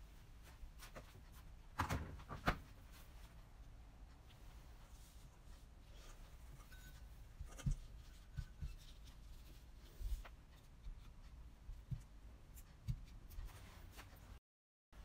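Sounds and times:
dishes rubbing and scraping: 5.9 - 10.0.

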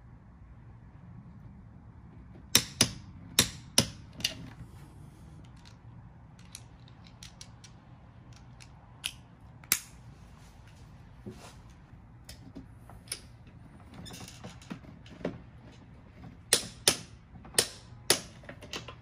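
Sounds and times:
sharp mechanical clicks and knocks: 16.2 - 19.0.

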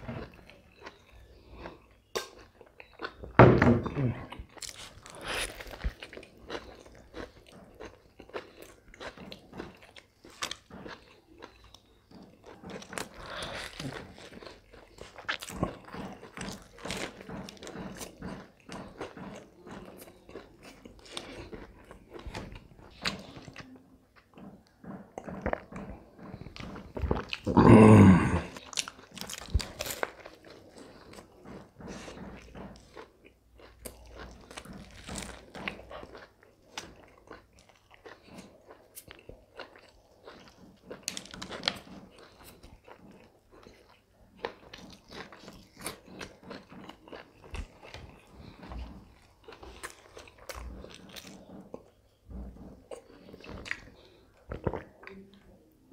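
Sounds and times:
man chewing with crunches: 0.0 - 55.9.

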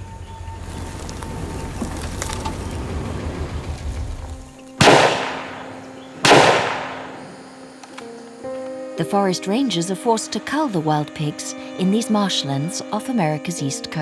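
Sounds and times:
gunshots: 4.8 - 7.4.

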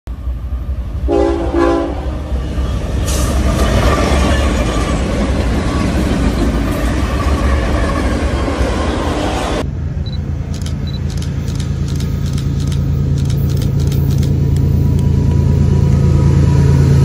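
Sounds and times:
locomotive engine and wheel rumble: 0.1 - 17.0
train air horn: 1.1 - 2.3.

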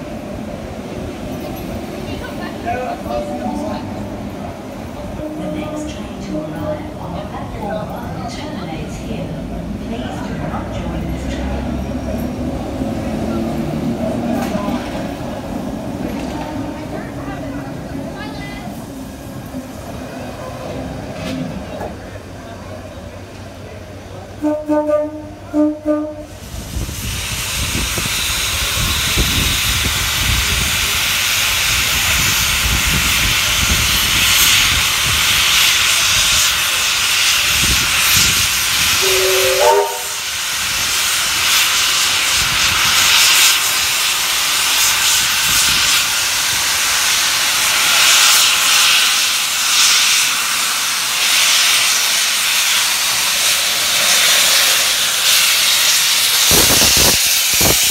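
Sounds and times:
steam whistle toots: 24.4 - 26.3, 38.9 - 40.3
steam hissing: 26.3 - 57.9.

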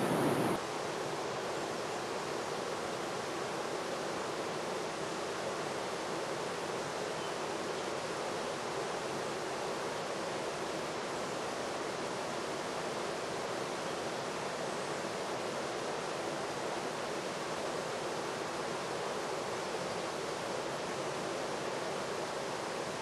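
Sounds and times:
steady rushing noise: 0.0 - 0.6.

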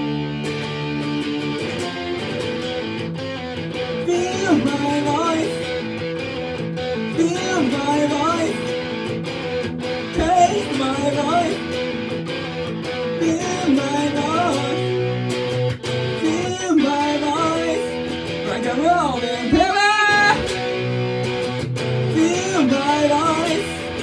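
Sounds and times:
electric guitar playing: 0.0 - 24.0.

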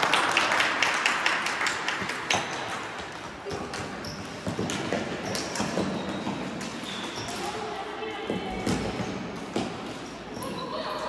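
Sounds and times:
short high squeaks: 5.3 - 7.6.

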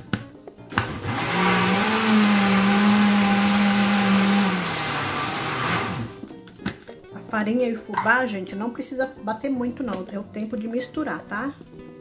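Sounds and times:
blender motor running: 0.8 - 6.2.

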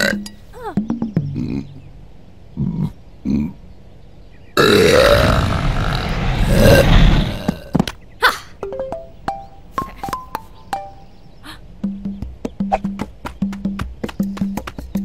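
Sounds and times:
cartoon ostrich grunts: 2.6 - 3.6
loud rushing noise: 5.2 - 7.7.

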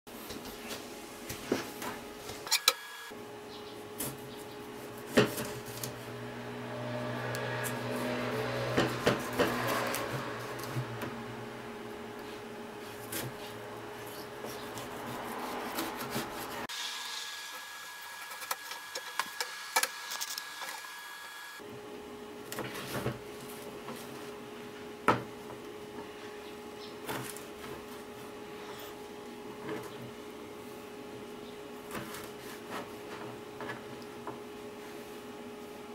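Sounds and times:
knife slicing tomato: 12.8 - 16.7.

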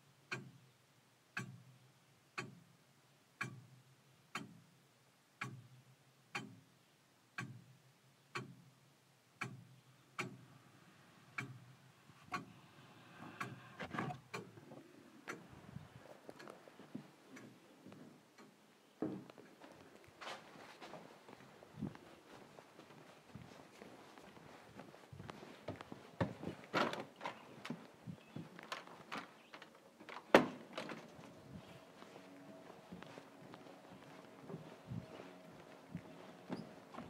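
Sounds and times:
clock ticking: 0.3 - 0.6, 1.3 - 1.8, 2.4 - 2.8, 3.4 - 4.8, 5.4 - 6.7, 7.3 - 10.6, 11.3 - 15.5, 16.3 - 18.6.

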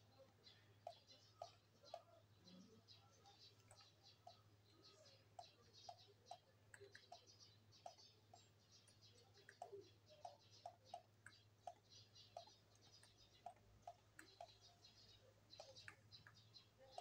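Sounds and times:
computer mouse clicking: 5.4 - 8.1, 8.8 - 17.0.

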